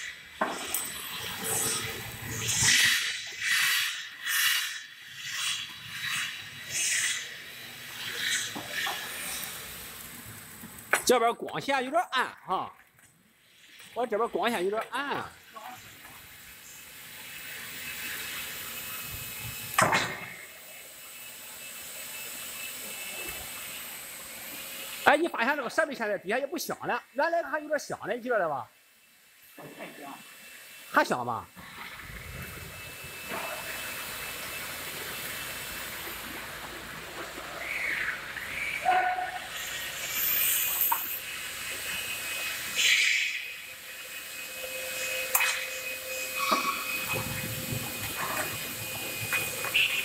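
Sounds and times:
wrapping machine hiss and whir: 0.0 - 12.6, 13.2 - 50.0
machine squeals: 16.6 - 25.9, 37.6 - 50.0.

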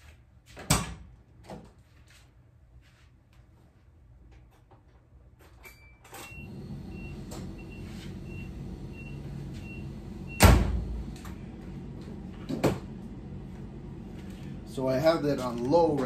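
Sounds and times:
low steady hum: 5.8 - 16.0
car warning chime beeping: 6.3 - 10.5.

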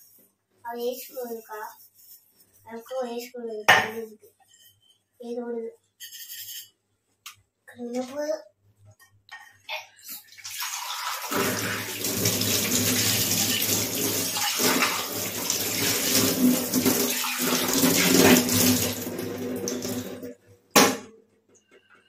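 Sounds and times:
tap water running into sink: 10.2 - 20.3
water splashing over steel tumbler: 10.4 - 20.3.

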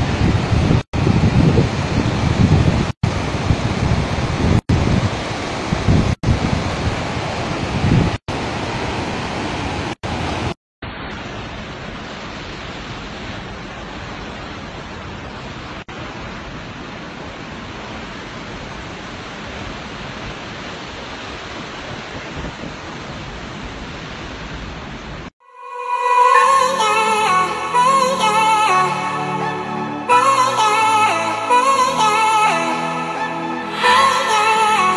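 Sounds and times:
waterfall rushing: 25.6 - 34.9.

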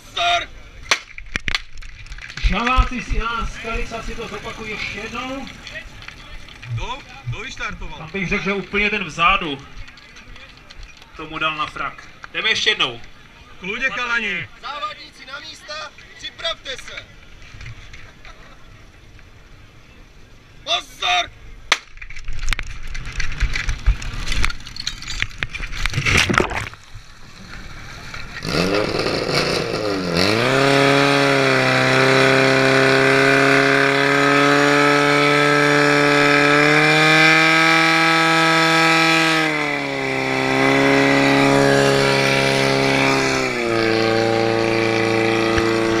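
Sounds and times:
hoses and couplings clattering: 22.4 - 26.7
pump engine running at high revs: 25.9 - 46.0.

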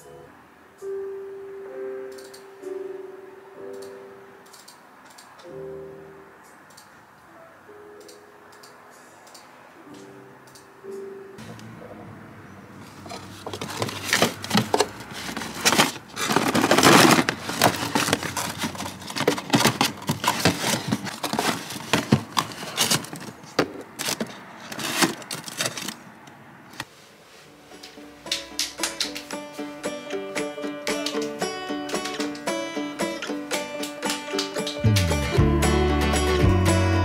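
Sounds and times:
cardboard box scraping: 12.9 - 23.4, 24.0 - 26.0
plastic packaging crinkling: 13.1 - 26.0.

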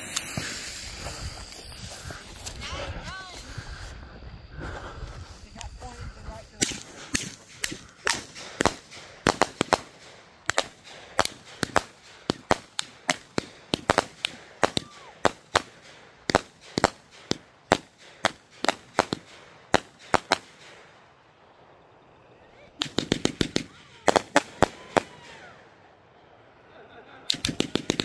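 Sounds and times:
fireworks popping and cracking: 0.0 - 3.4, 5.4 - 21.0, 22.8 - 25.5, 27.3 - 28.0.

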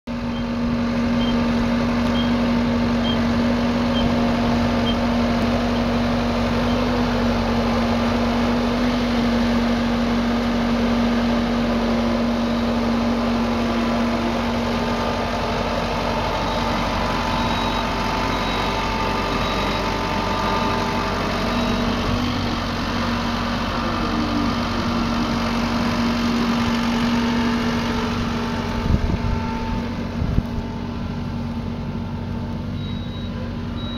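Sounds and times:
tractor engine running: 0.1 - 33.9
faint high beeps: 16.4 - 20.8, 32.8 - 33.9.

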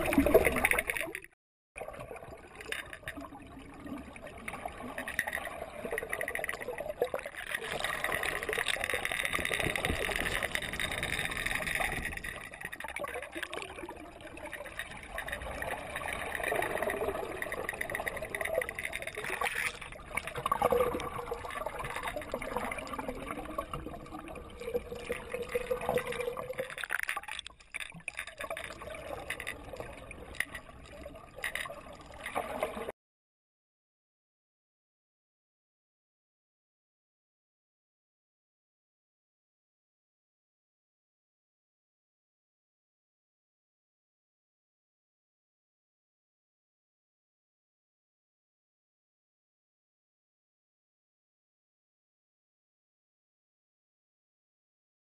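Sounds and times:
underwater rushing and gurgling: 0.0 - 32.9.

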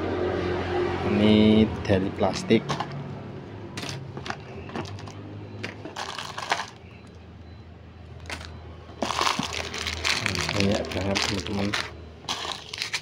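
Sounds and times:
plastic packaging rustling: 3.8 - 6.8, 8.2 - 13.0
plastic pieces clicking: 3.8 - 6.8, 8.2 - 13.0.

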